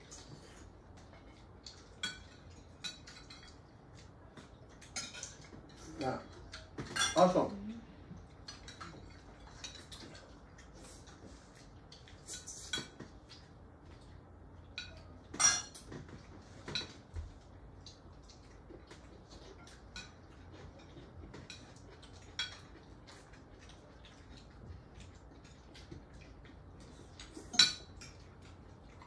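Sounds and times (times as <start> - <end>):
cutlery scraping and clinking on plates: 0.0 - 4.1, 4.8 - 7.4, 8.4 - 10.4, 12.0 - 13.2, 14.7 - 17.1, 18.8 - 23.8, 26.8 - 28.3.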